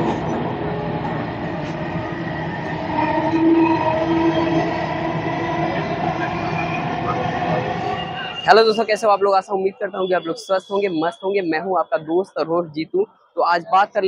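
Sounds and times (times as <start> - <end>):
train wheels rumbling on track: 0.0 - 8.6
train humming tone: 0.0 - 12.4.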